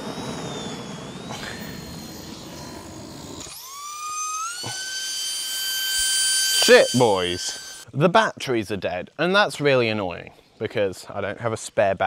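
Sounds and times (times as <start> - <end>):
starter motor whine rising: 0.0 - 7.8.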